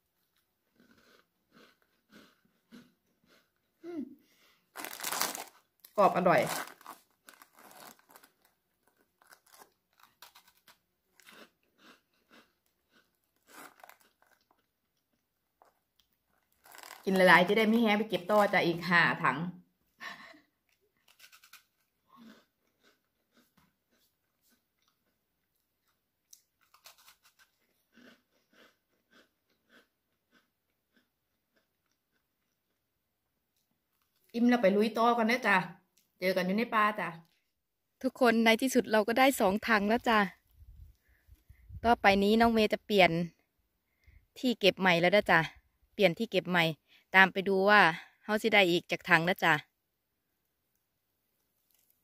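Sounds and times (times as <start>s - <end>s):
biscuit crunching: 0.1s - 3.8s, 4.7s - 17.3s, 20.7s - 34.3s, 51.4s - 52.0s.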